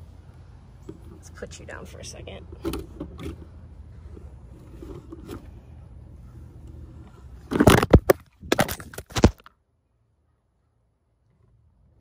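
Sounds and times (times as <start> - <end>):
handling noise on microphone: 2.4 - 5.8, 6.4 - 9.5
camera clattering: 7.5 - 9.5.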